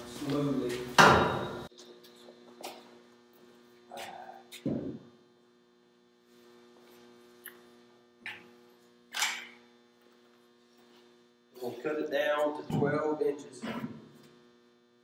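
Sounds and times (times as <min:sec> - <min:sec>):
electrical mains hum: 0:00.0 - 0:15.0.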